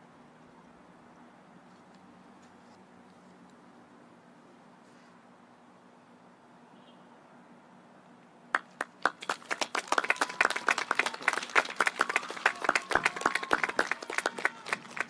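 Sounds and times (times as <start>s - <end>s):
people clapping: 8.5s - 15.0s.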